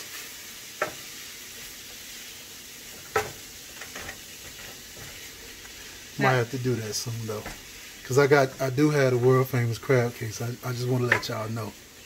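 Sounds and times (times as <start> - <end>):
filling sizzling in frying pan: 0.0 - 12.0
spoon knocking against pan: 3.1 - 5.1.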